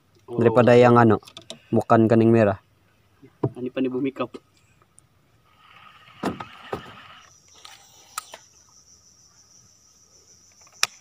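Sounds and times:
high insect drone: 5.4 - 11.0
sharp knocks: 6.2 - 7.0.

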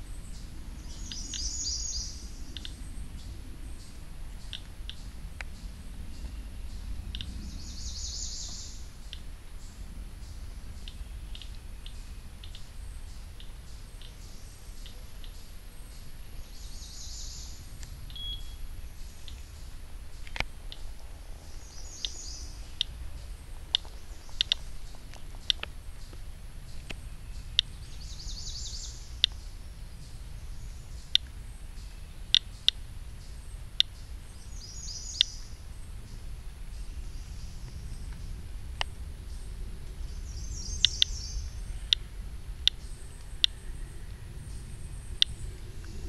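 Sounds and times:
low outdoor rumble: 0.0 - 46.0
geiger counter clicking: 24.4 - 24.6.

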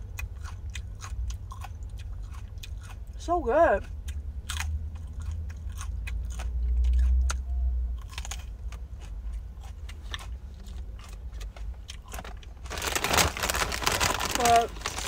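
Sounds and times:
crunching and chewing pepper: 0.0 - 15.0
low rumble: 3.8 - 15.0.

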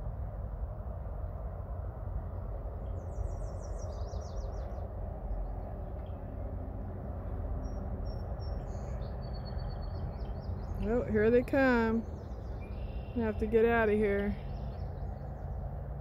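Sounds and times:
low background rumble: 0.0 - 16.0
bird singing trill: 2.8 - 6.3, 7.6 - 15.7.

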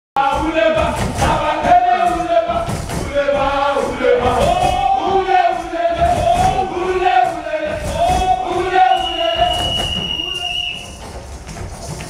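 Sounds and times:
group of voices chanting: 0.2 - 10.0
steady rhythmic beat: 0.2 - 12.0.

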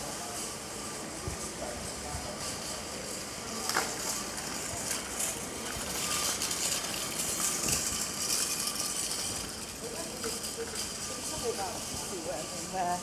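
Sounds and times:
steady background hiss: 0.0 - 13.0
scattered clicks and knocks: 3.6 - 11.4.

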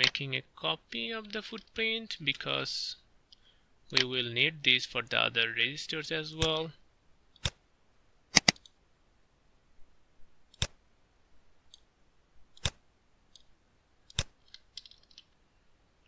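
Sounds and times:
computer mouse clicks: 8.4 - 8.8, 10.5 - 10.8, 12.6 - 13.5, 14.1 - 15.3.

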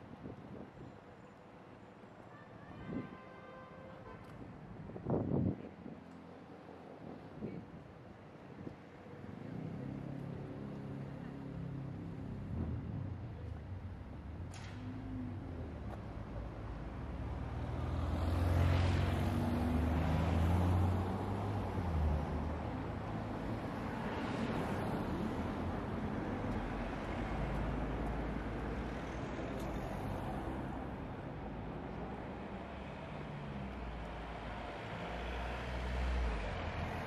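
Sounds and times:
road traffic passing: 9.0 - 37.0.

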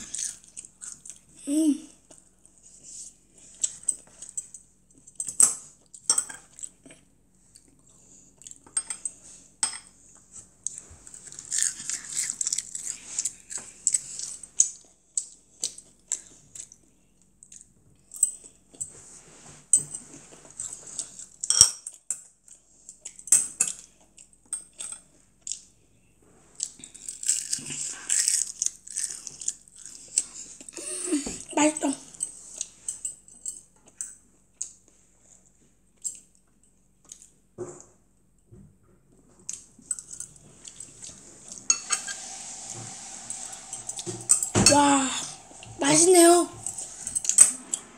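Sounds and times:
crunchy chewing: 10.6 - 14.8, 26.6 - 30.6.

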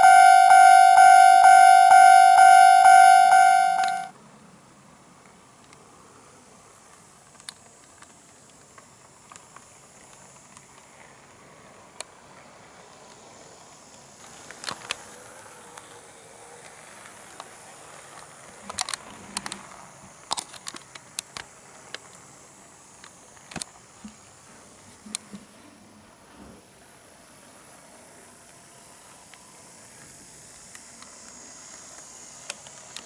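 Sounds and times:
wheels clicking over rail joints: 6.9 - 22.3
model train motor hiss: 8.0 - 24.9, 27.1 - 33.0.

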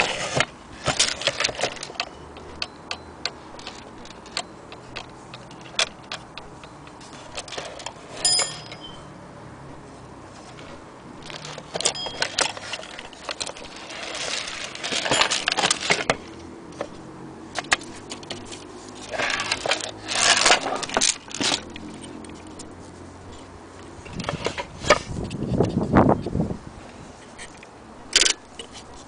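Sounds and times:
clock parts clinking and rattling: 0.8 - 9.1, 11.2 - 22.7, 27.4 - 29.0.

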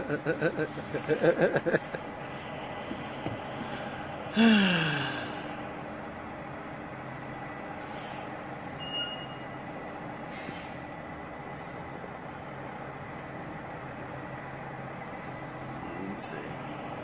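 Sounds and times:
diesel truck engine running: 0.0 - 17.0
high squeak: 8.8 - 9.4.

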